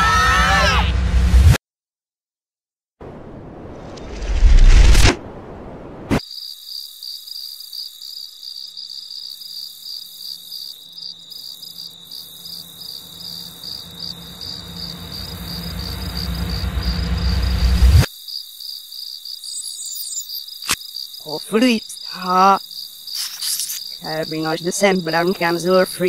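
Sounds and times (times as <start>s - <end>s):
cartoon cricket chirping: 6.2s - 26.0s
low rumble: 14.6s - 18.1s.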